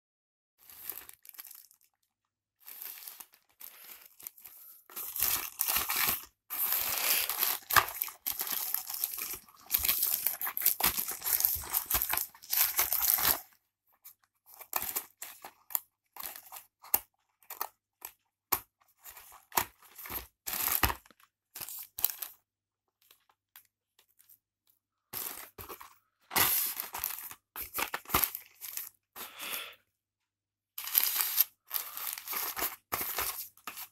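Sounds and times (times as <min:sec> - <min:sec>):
plastic bag tearing and rustling: 0:00.6 - 0:02.0, 0:02.6 - 0:13.6
cardboard boxes crackling: 0:04.9 - 0:13.5.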